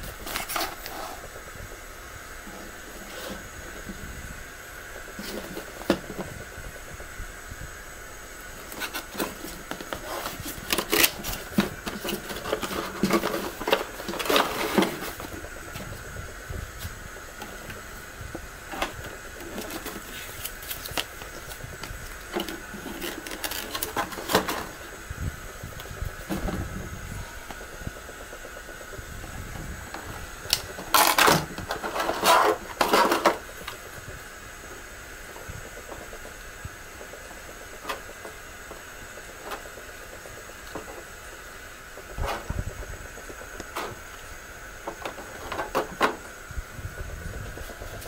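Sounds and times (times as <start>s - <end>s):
background hiss: 0.0s - 48.0s
plastic blister tray crinkling: 8.6s - 25.0s
cardboard box rustling: 8.7s - 15.9s.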